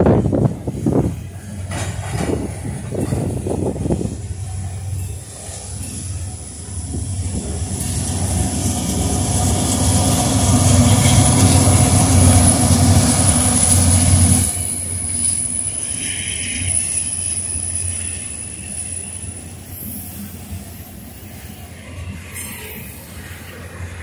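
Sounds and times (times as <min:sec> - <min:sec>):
train wheels rumbling on rails: 0:00.0 - 0:24.0.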